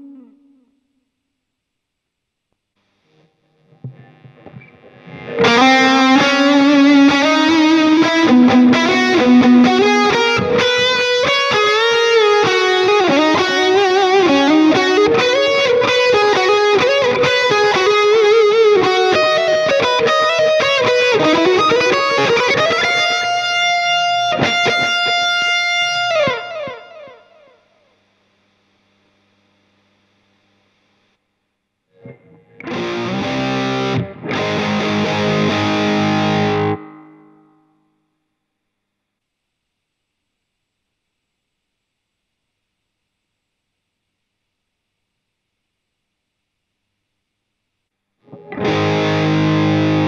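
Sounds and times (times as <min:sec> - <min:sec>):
distorted electric guitar solo: 0:00.0 - 0:01.0, 0:03.1 - 0:27.8, 0:31.9 - 0:37.9, 0:48.2 - 0:50.0.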